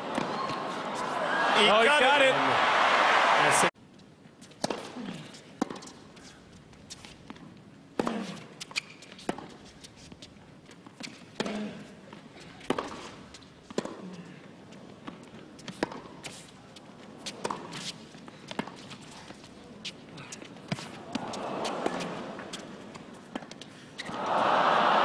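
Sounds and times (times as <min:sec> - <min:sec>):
racquets striking tennis ball: 0:12.6 - 0:14.0, 0:15.0 - 0:16.2.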